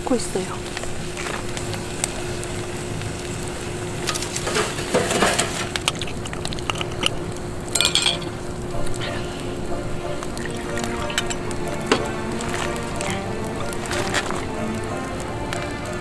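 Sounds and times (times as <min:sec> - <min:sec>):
campfire crackling: 0:00.0 - 0:16.0
glass bottle and cup clinking: 0:06.7 - 0:08.5, 0:10.8 - 0:12.1.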